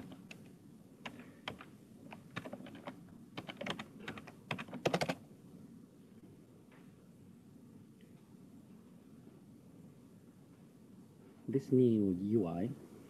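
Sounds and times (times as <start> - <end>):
computer keyboard typing: 0.0 - 0.4, 1.0 - 5.2.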